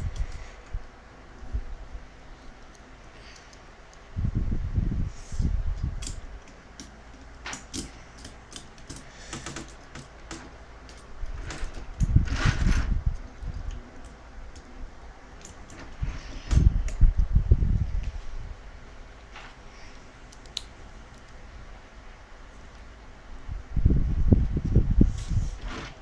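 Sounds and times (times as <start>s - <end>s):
toy parts clicking and knocking: 5.8s - 14.7s.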